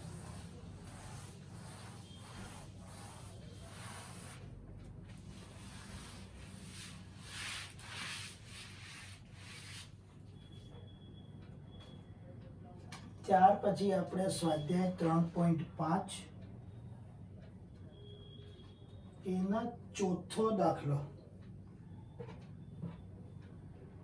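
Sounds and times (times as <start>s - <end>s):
cloth wiping a chalkboard: 0.0s - 10.0s.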